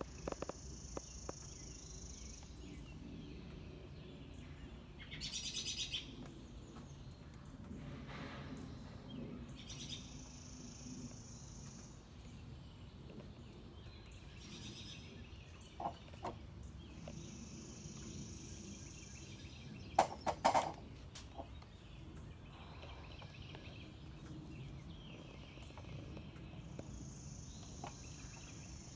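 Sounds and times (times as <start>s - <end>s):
sharp clicks or knocks: 20.0s - 20.8s.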